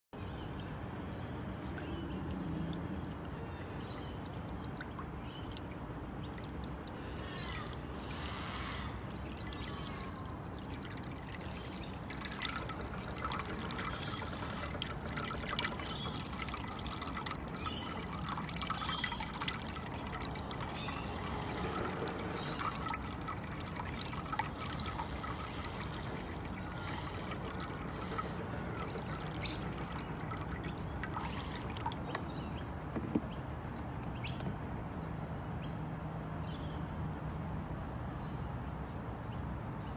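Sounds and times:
water pouring into dish: 0:03.6 - 0:32.2.

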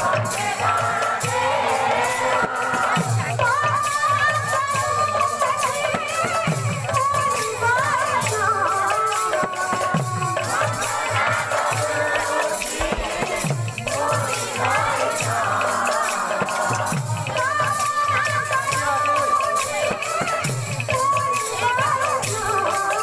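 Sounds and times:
jingling rattling percussion: 0:00.0 - 0:23.0.

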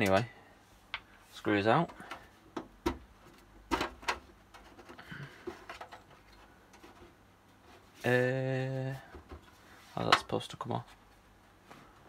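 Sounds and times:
clicks and knocks of pc case panel: 0:01.8 - 0:04.9.

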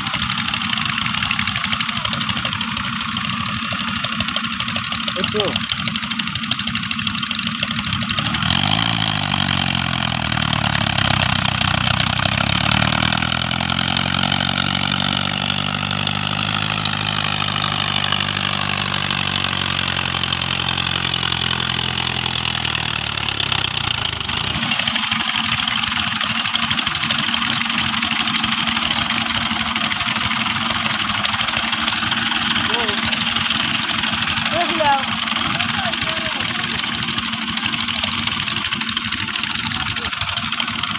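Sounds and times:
tractor diesel engine under load: 0:00.0 - 0:40.9.

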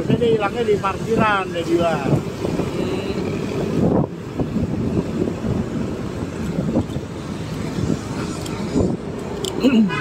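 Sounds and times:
road noise: 0:00.0 - 0:10.0
wind buffeting microphone: 0:00.0 - 0:10.0.

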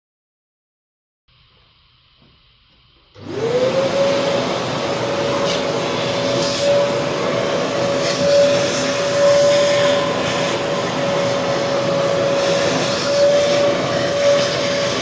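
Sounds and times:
motor whining with airy rush: 0:03.2 - 0:15.0.

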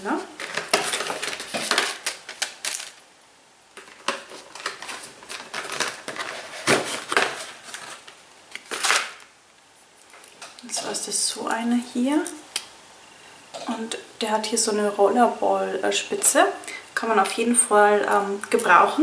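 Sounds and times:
packaging crackling and tearing: 0:00.4 - 0:03.1, 0:03.8 - 0:09.3.

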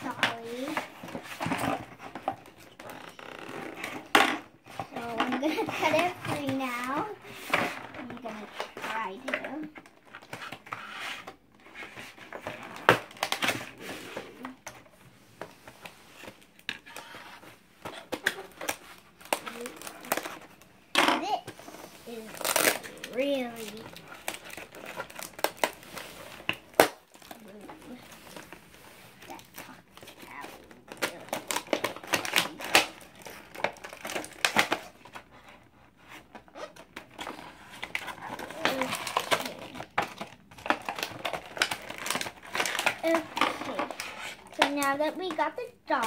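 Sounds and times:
plastic packaging crinkling: 0:17.9 - 0:20.7, 0:21.6 - 0:35.3, 0:36.1 - 0:46.0.

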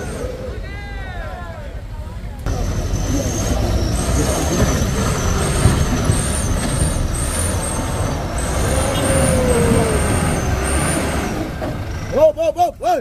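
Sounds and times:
truck diesel engine rumbling: 0:00.0 - 0:13.0
high wavering whistle: 0:06.9 - 0:11.3.

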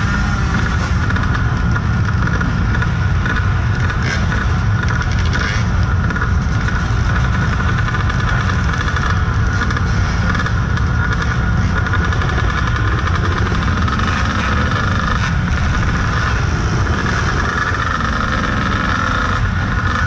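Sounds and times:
dirt bike engine idling: 0:00.0 - 0:20.0
other dirt bike engines: 0:00.0 - 0:20.0.

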